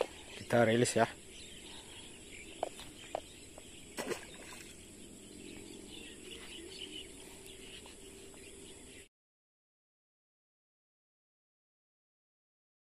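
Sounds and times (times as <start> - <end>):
birds chirping: 0.0 - 9.1.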